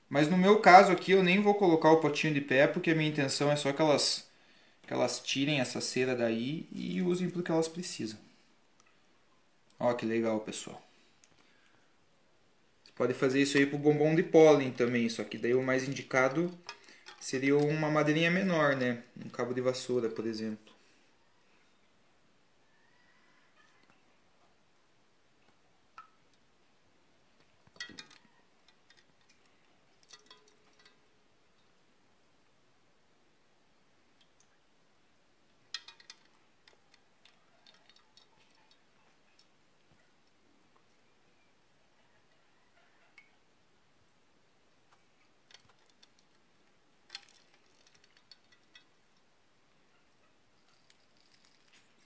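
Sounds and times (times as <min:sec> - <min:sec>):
wooden dowel clinking on metal: 0:16.4 - 0:17.8, 0:27.6 - 0:31.1, 0:35.6 - 0:39.5, 0:47.0 - 0:49.3
small splashes and drips: 0:25.9 - 0:26.4, 0:27.7 - 0:31.7, 0:34.1 - 0:34.6.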